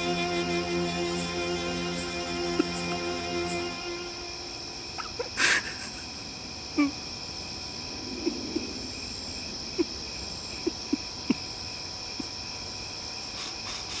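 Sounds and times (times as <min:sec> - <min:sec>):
crickets chirring: 0:00.0 - 0:14.0.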